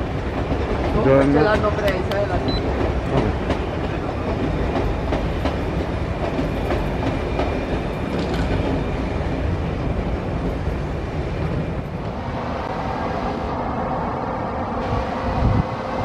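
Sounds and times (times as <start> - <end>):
train wheels clicking over rail joints: 0.0 - 9.2
train running rumble: 0.0 - 16.0.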